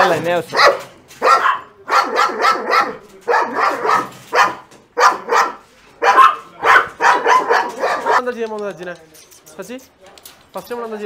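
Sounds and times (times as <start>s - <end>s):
dogs barking: 0.5s - 8.4s.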